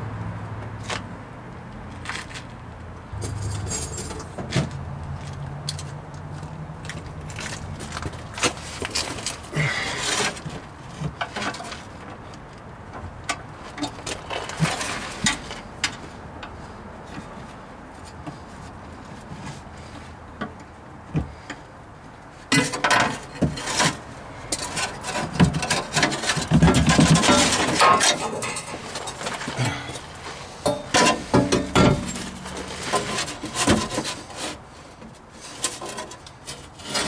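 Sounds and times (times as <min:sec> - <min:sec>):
metal scraping and clanking: 0:03.1 - 0:05.4, 0:22.5 - 0:34.7, 0:35.3 - 0:37.0
metal parts clinking and knocking: 0:03.2 - 0:04.4, 0:30.7 - 0:33.9.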